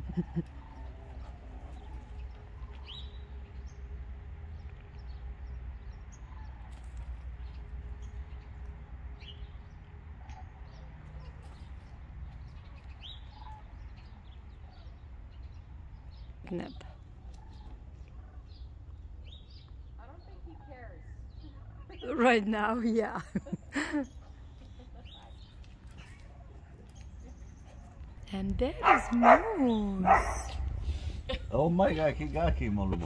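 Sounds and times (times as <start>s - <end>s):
small birds chirping: 0.0s - 33.0s
steady low rumble: 23.4s - 33.0s.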